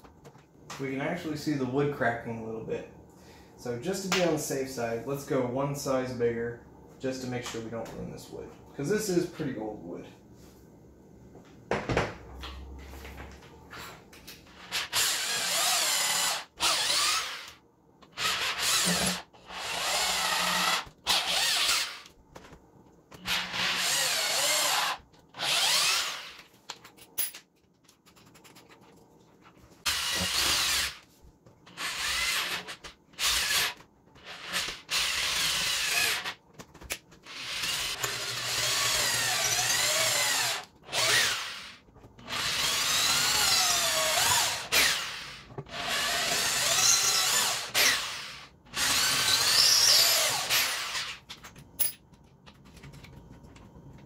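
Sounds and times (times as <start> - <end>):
electric drill boring into wood: 14.6 - 17.6, 18.2 - 22.1, 23.3 - 26.4, 29.9 - 31.0, 31.7 - 36.4, 37.2 - 51.2.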